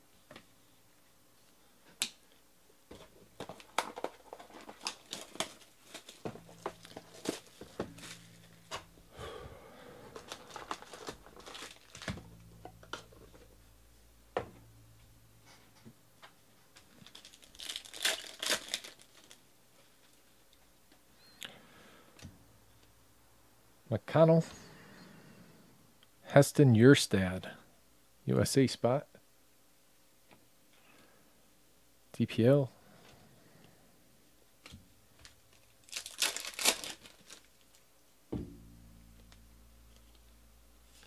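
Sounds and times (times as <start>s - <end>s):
cardboard and cards handled: 2.9s - 8.9s, 10.1s - 13.4s
plastic wrapper crinkling and tearing: 3.4s - 8.9s, 10.1s - 13.3s, 16.8s - 20.3s, 35.2s - 37.9s.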